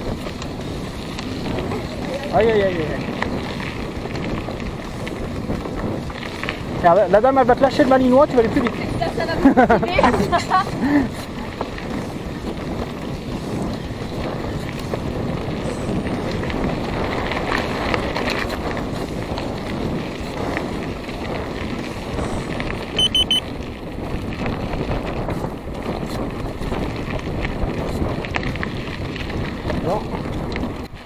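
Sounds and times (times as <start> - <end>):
mountain bike rattling on dirt: 0.0 - 31.0
wind buffeting microphone: 0.0 - 31.0
quick high beeps: 23.0 - 23.4.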